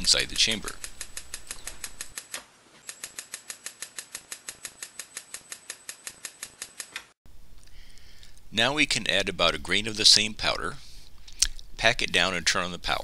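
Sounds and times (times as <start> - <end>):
electric sparks snapping: 0.0 - 7.2.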